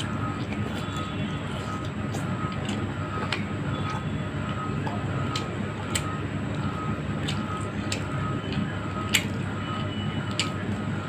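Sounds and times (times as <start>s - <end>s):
person chewing food: 0.0s - 10.9s
low background hum: 0.0s - 11.0s
wet mouth clicks and smacks: 4.8s - 9.4s, 10.2s - 10.8s.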